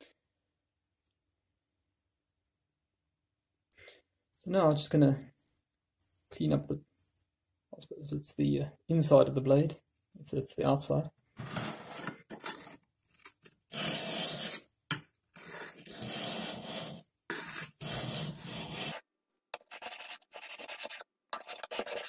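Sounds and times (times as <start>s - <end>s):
blade rasping on sharpening stone: 19.6s - 22.0s.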